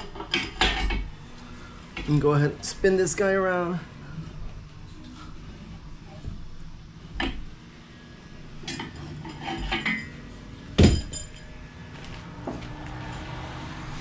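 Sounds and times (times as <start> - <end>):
metal clinking: 8.5 - 13.6
sharp ringing metal clink: 9.8 - 11.6.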